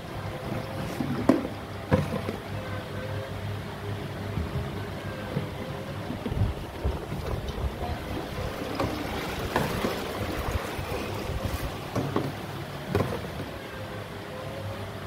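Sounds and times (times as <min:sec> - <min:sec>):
low machine hum: 0:00.0 - 0:15.0
plastic bottles clunking: 0:00.4 - 0:02.5, 0:04.3 - 0:13.5.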